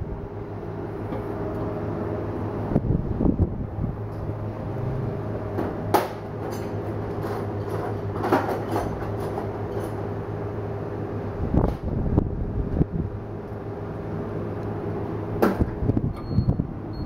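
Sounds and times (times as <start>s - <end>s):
workshop machine hum: 0.0s - 17.0s
knocks and clatters: 5.5s - 10.0s.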